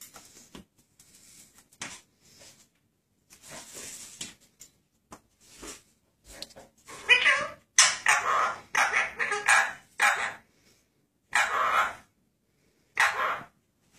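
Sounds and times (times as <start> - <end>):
soft scuffles: 3.3 - 4.4, 5.1 - 6.7.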